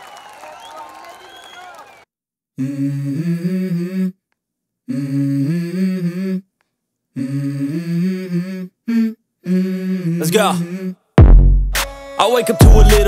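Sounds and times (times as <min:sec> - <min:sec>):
person humming a melody: 0:02.6 - 0:04.2, 0:04.9 - 0:06.5, 0:07.2 - 0:11.0, 0:12.2 - 0:13.0.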